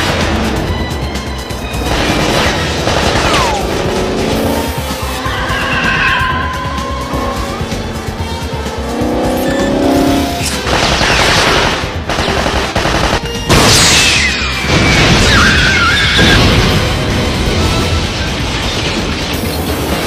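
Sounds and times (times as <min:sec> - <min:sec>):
car engine: 0:00.0 - 0:12.1
orchestral music: 0:00.0 - 0:18.7
gunfire: 0:01.9 - 0:03.6, 0:10.6 - 0:13.8.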